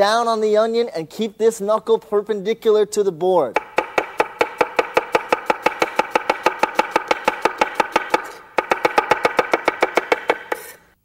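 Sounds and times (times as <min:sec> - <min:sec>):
knife tapping on cutting board: 0:03.6 - 0:10.7.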